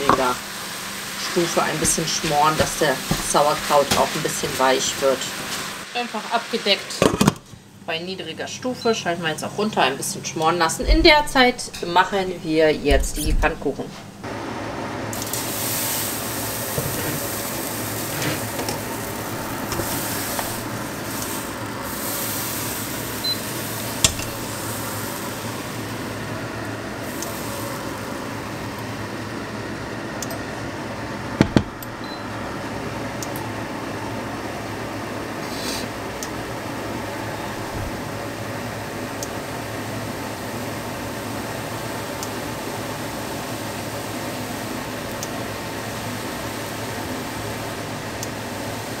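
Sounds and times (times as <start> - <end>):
batter sizzling in frying pan: 0.0 - 6.9, 15.1 - 29.8
pan knocking on cooktop: 24.0 - 24.4, 31.4 - 31.8.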